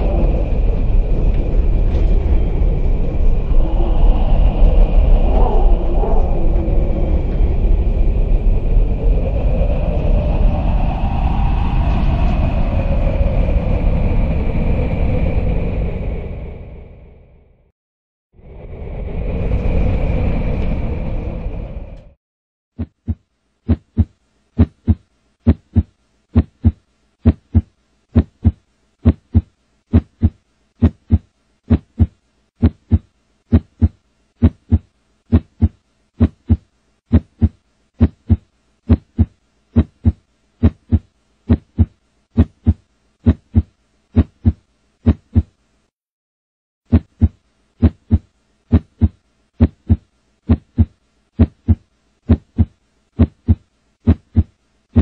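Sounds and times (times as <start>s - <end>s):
heartbeat thumps: 22.8s - 45.5s, 46.9s - 55.0s.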